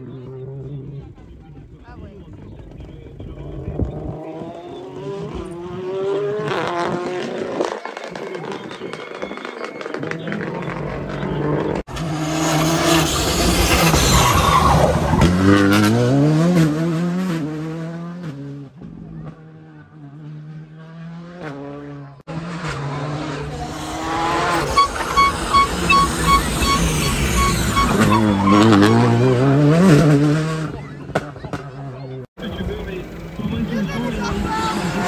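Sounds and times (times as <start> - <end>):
rally car engines at full throttle: 0.0 - 35.0
car braking: 2.8 - 16.9, 22.4 - 35.0.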